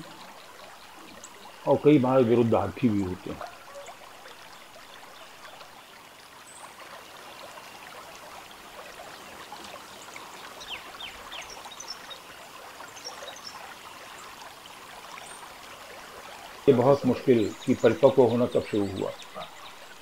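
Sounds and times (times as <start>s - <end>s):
outdoor background hiss: 0.0s - 20.0s
small chirps and ticks: 3.4s - 14.6s.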